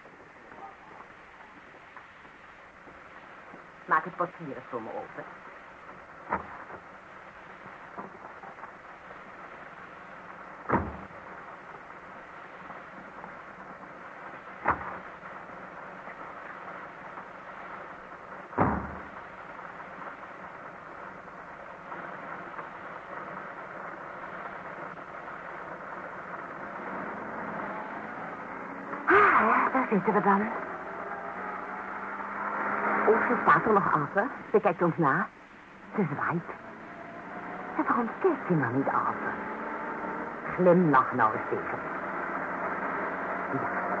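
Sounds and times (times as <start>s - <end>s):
steady background noise: 0.0s - 44.0s
car doors thumping shut: 10.7s - 11.1s, 18.6s - 19.1s.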